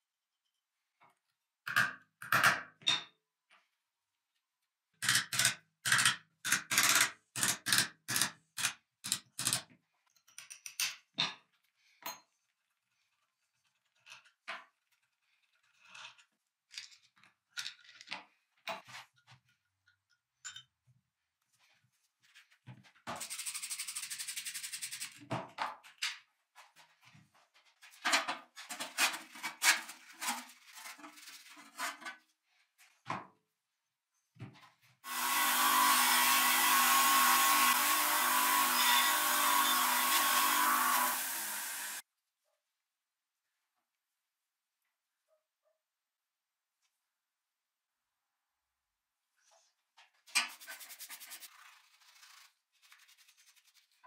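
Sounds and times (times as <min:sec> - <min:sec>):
tools clicking and knocking: 0:05.0 - 0:12.3
electric motor running: 0:35.1 - 0:42.0.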